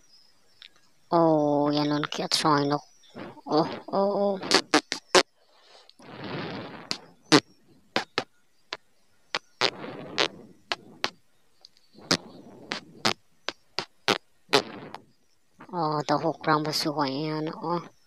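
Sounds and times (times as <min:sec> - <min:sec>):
short rushing noise bursts: 0:03.2 - 0:05.2, 0:06.0 - 0:08.8, 0:09.4 - 0:11.3, 0:11.9 - 0:15.7.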